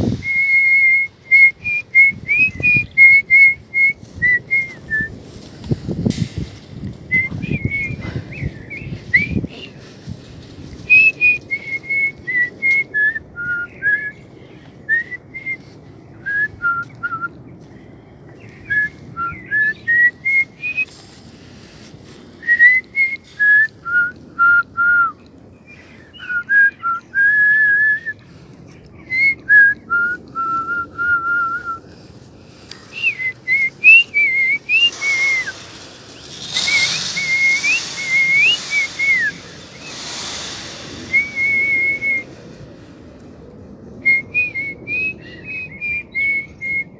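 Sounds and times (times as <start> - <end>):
woman whistling a tune: 7.1 - 8.1, 26.3 - 28.2, 29.2 - 31.8, 32.9 - 35.5, 36.6 - 40.0, 41.1 - 42.2, 44.0 - 46.9.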